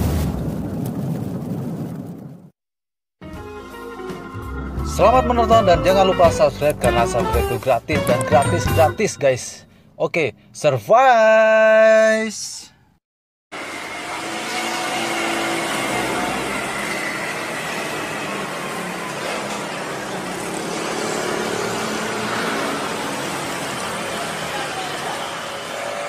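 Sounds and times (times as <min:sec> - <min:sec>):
traffic of motorbikes and cars: 0:13.6 - 0:26.0.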